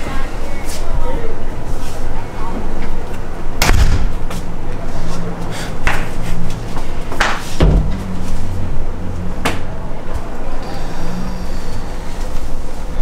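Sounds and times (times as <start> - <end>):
sharp knocks: 7.2 - 8.1.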